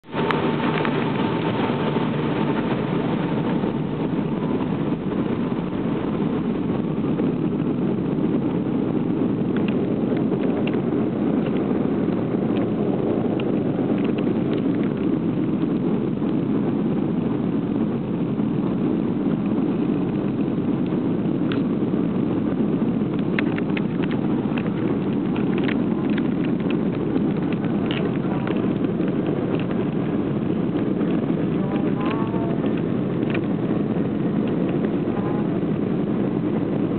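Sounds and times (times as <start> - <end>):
airliner engines roaring: 0.0 - 36.9
light clicks and rattles: 23.2 - 30.0.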